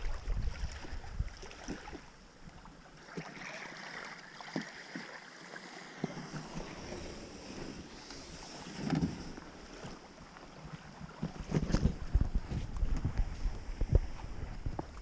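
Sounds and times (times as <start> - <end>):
water lapping at bank: 0.0 - 15.0
kayak hull scraping on mud: 3.5 - 15.0.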